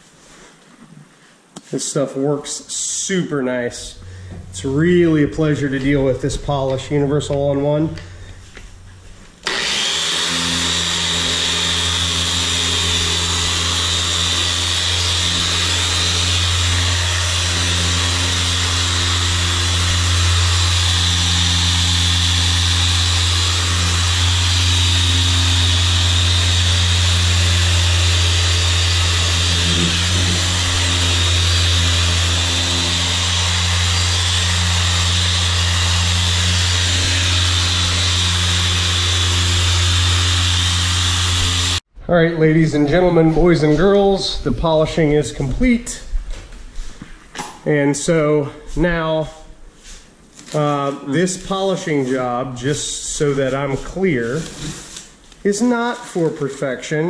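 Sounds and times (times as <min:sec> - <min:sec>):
electric machine polisher humming: 0:06.9 - 0:41.8.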